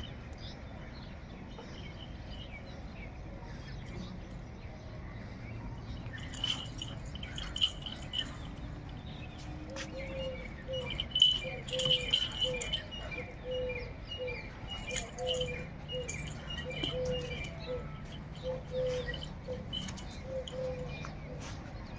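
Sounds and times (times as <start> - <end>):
birds calling: 0.0 - 21.9
rope and metal rod rattling: 6.1 - 13.3, 14.7 - 21.1.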